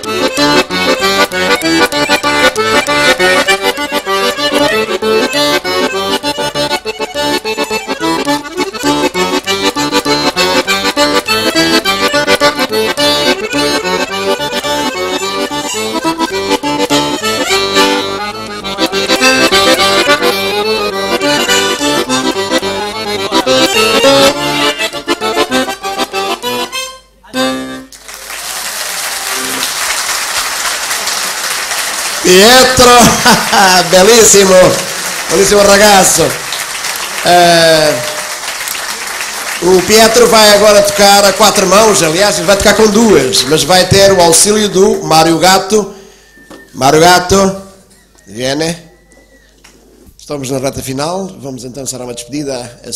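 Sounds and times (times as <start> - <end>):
piano accordion playing: 0.0 - 49.4
applause: 27.9 - 41.6.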